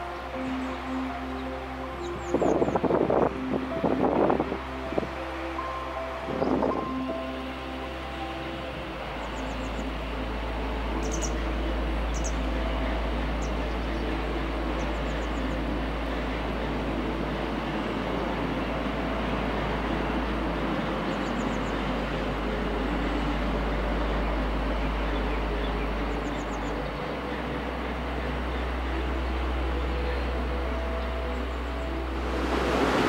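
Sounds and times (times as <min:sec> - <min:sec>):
small birds chirping: 0:11.0 - 0:11.4, 0:12.1 - 0:12.4
outdoor rushing rumble: 0:27.4 - 0:33.0.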